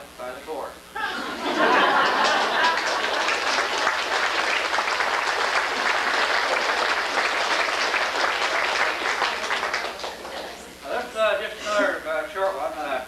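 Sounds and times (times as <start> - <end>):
audience applauding: 1.5 - 10.8.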